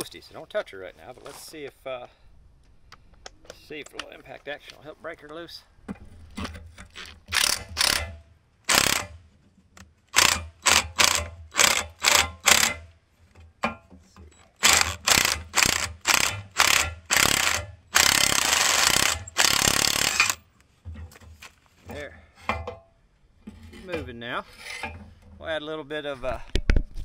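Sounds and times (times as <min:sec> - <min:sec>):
impact wrench hammering: 0:07.3 - 0:09.2, 0:10.2 - 0:12.9, 0:14.6 - 0:20.4.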